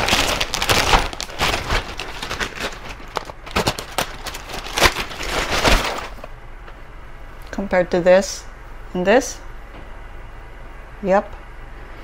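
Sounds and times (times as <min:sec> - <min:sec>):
plastic bag crinkling: 0:00.0 - 0:06.4.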